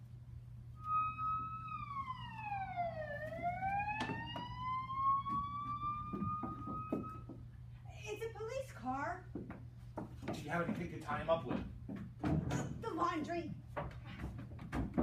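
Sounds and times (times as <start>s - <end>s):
siren-like whistling tone: 0.7s - 7.3s.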